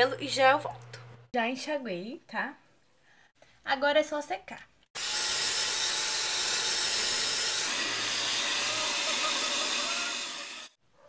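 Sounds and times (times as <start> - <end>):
hair dryer blowing: 7.6 - 10.8.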